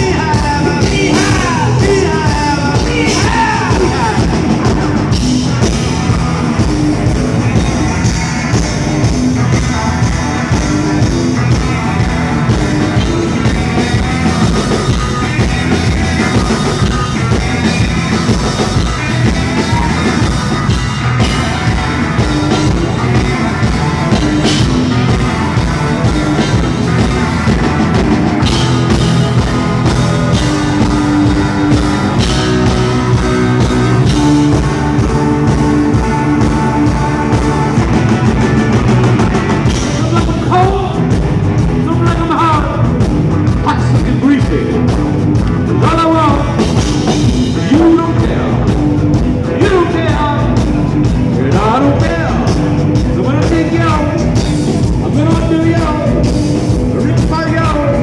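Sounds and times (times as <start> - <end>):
person singing: 0.0 - 4.8
punk rock band playing: 0.0 - 58.0.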